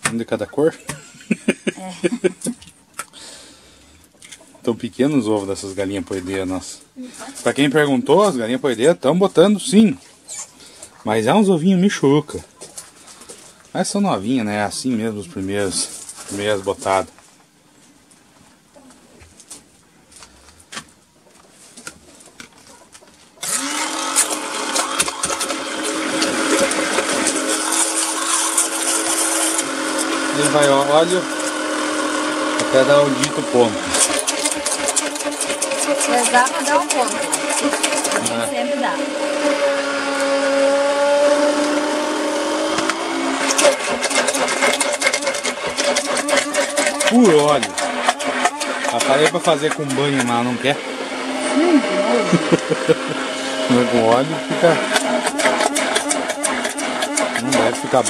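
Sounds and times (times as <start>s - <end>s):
wet clicking and spluttering: 21.9s - 30.2s, 32.6s - 38.4s, 42.8s - 50.5s, 54.7s - 58.0s
immersion blender motor running: 23.4s - 58.0s.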